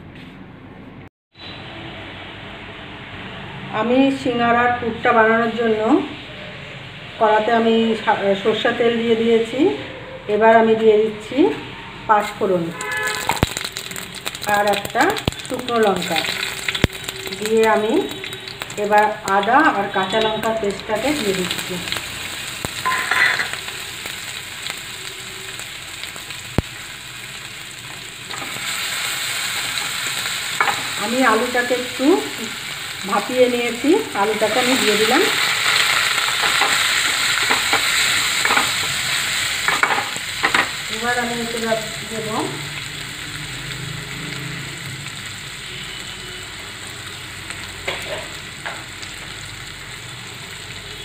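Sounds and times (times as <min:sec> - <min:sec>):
paste sizzling in hot oil: 0:12.2 - 0:51.0.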